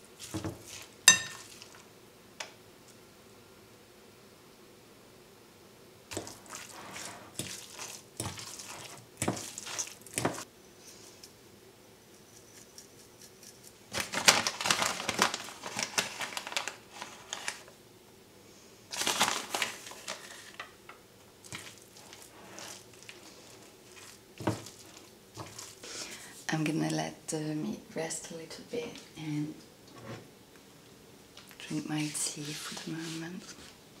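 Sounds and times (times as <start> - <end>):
paper bag crinkling: 13.9 - 17.7, 18.9 - 20.6.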